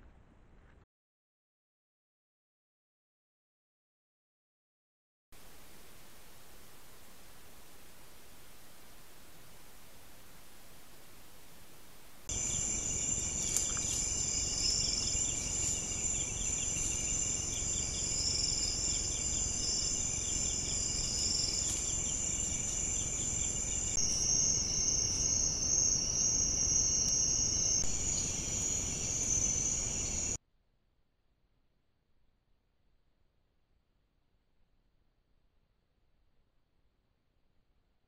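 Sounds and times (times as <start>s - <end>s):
low hiss: 5.4s - 30.4s
high-pitched insect trills: 12.3s - 30.4s.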